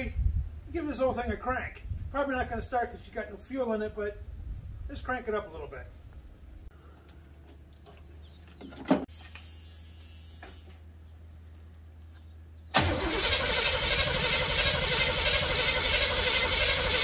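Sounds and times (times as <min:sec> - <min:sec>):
starter cranking engine: 0:12.7 - 0:17.0.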